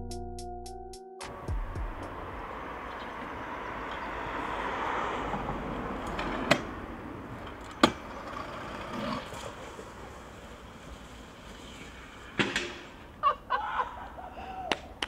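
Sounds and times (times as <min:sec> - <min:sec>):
scooter wheels rolling on concrete: 0:02.4 - 0:13.2.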